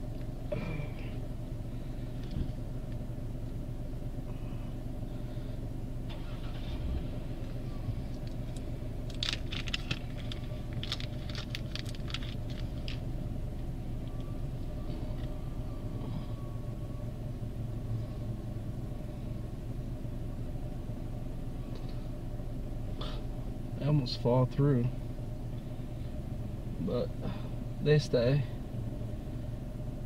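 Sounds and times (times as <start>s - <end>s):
car engine idling: 0.0s - 30.0s
small sharp clicks and rattles: 8.1s - 13.0s.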